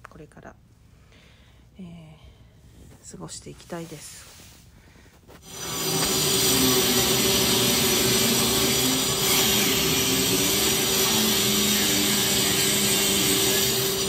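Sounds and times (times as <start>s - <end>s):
dust collector humming: 5.4s - 14.0s
power tool noise: 5.4s - 14.0s.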